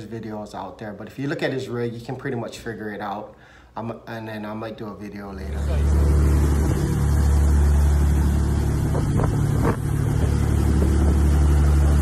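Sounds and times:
boat engines droning: 5.5s - 12.0s.

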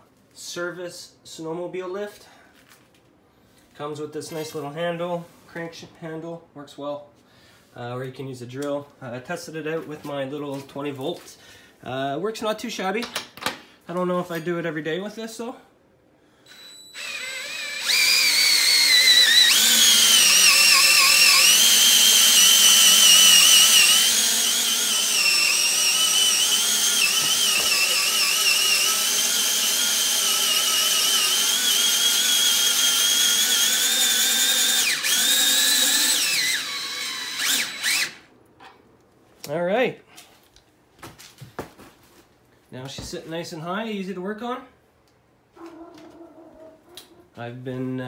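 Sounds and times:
cordless drill motor whine: 16.5s - 38.2s.

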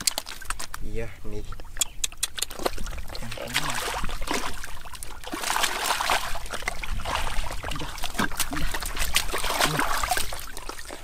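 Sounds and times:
hands squelching in wet mud: 1.7s - 11.0s.

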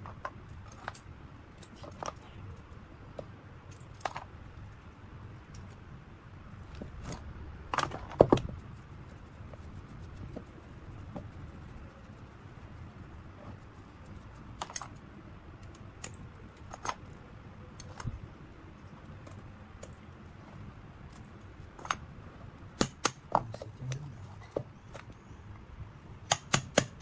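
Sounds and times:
scissors clicking and snipping: 14.6s - 15.0s
hammer striking chisel: 26.3s - 27.0s.

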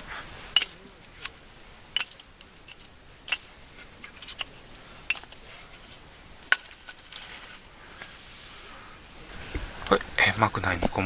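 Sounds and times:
wood pieces knocking: 2.0s - 4.5s, 6.4s - 7.3s.

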